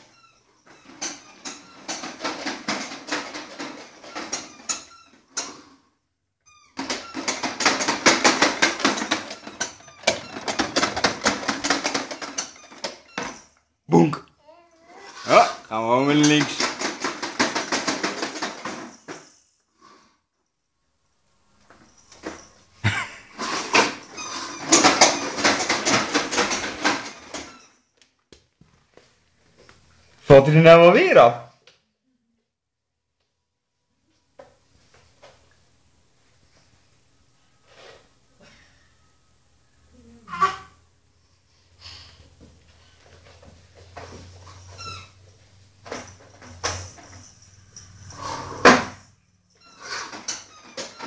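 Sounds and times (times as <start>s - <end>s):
toy walker rattling on wooden floor: 0.0s - 5.7s, 6.8s - 13.6s, 15.1s - 19.4s, 21.7s - 27.8s, 42.6s - 51.0s.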